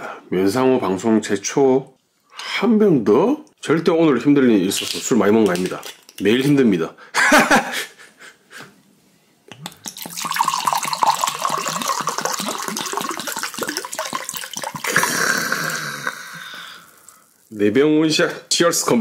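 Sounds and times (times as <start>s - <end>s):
liquid glugging from a bottle: 9.5s - 17.4s.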